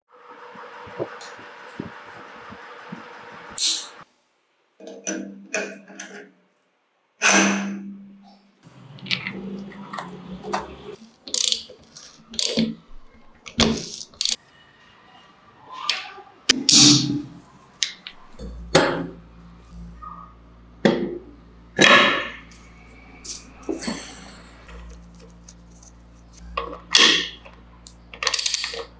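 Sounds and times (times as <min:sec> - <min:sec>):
metal parts clinking and knocking: 0:09.0 - 0:12.7, 0:13.5 - 0:14.4, 0:23.3 - 0:28.9.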